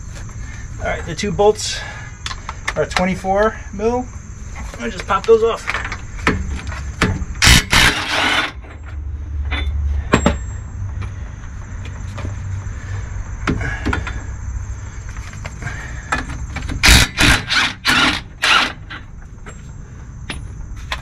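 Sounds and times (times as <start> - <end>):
low steady rumble: 5.4 - 21.0.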